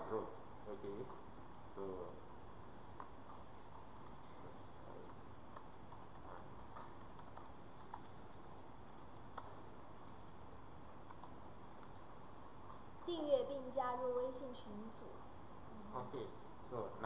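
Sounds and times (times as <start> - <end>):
low hiss: 0.0 - 17.0
keyboard typing clicks: 0.7 - 1.7, 5.5 - 11.9.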